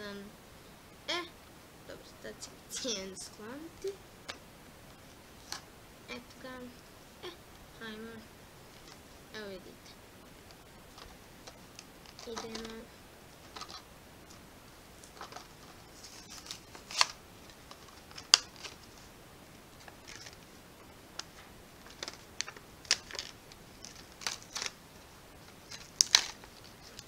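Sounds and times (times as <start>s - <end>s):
plastic blister crackling: 10.4s - 14.4s, 15.0s - 19.1s, 19.8s - 27.0s.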